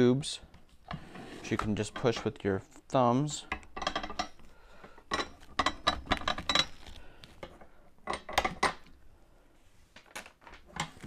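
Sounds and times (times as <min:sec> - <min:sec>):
metal frame clinking: 0:03.5 - 0:04.4, 0:05.1 - 0:06.9.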